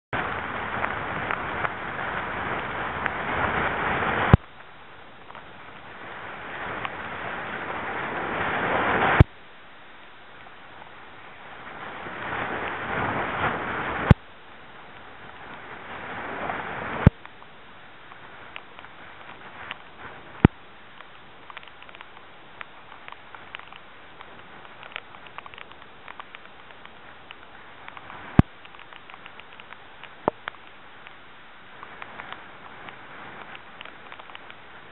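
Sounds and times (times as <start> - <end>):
rain ticking: 0.1 - 34.9
waves: 0.1 - 34.9
wind gusting against microphone: 0.2 - 9.3, 9.9 - 17.2
wind rushing on microphone: 0.2 - 9.4, 10.0 - 34.9.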